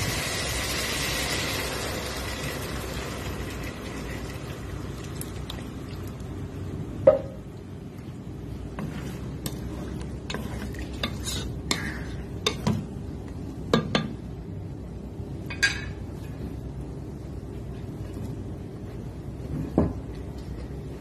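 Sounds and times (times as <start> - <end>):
steady low hum: 2.1 - 21.0
spatula knocking and scraping pot: 8.7 - 12.9.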